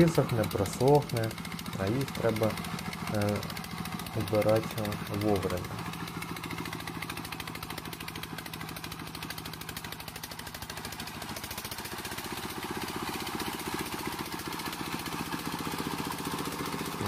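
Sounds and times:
tractor engine chugging: 0.0 - 17.0.

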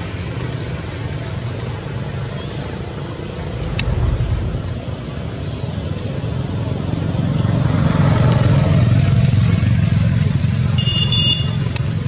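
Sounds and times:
motor vehicle engine rumble: 2.6 - 5.6.

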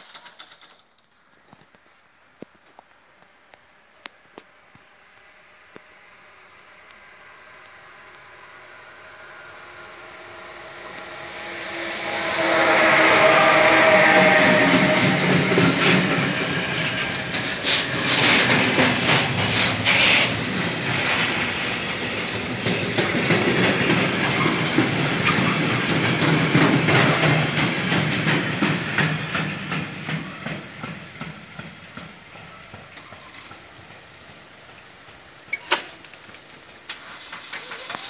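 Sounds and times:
train wheels clattering: 9.6 - 38.0.

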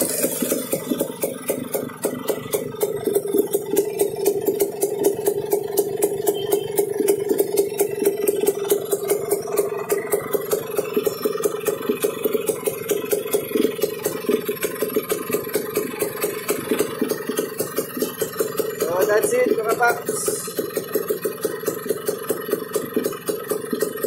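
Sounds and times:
motorcycle engine idling: 0.0 - 24.0.

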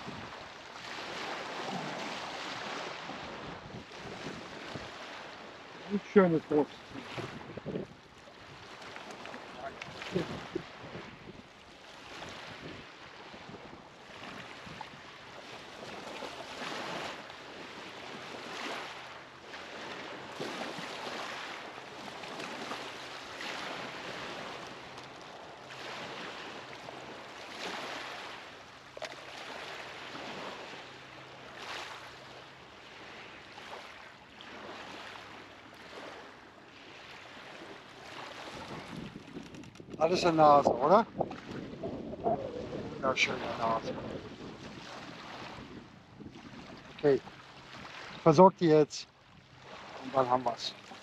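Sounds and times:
river waves washing against bank: 0.0 - 51.0.

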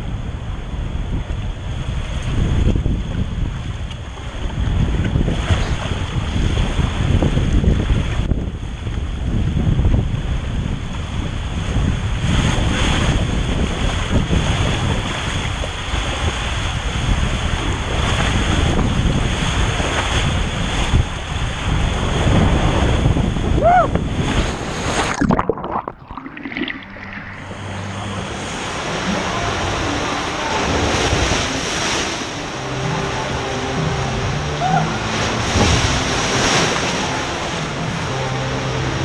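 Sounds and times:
wind buffeting camera: 0.0 - 28.0
water rushing down a slide: 23.6 - 32.4.

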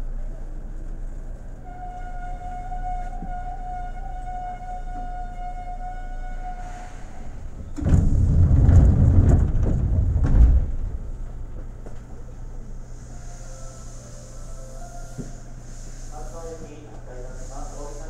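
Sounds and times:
electric train whine: 0.1 - 10.1, 10.7 - 18.0
low rumble with knocks: 7.4 - 12.4.

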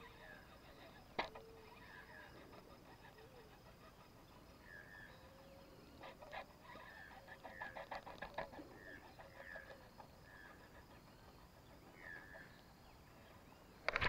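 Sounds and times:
rapid clucking bird calls: 0.0 - 14.0.

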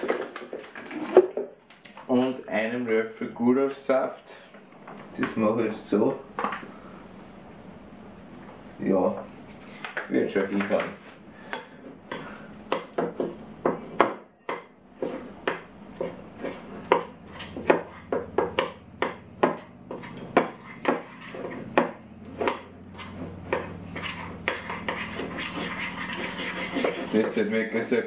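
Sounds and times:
spoon scraping glass bowl: 19.9 - 21.8, 22.8 - 27.6.

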